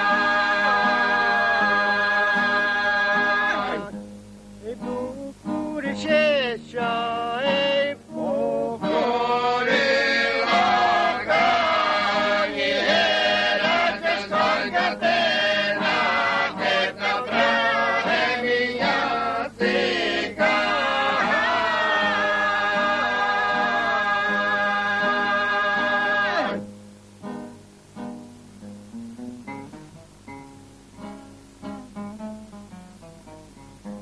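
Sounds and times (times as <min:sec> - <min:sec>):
group singing chant-like song: 0:00.0 - 0:03.9, 0:07.4 - 0:26.6.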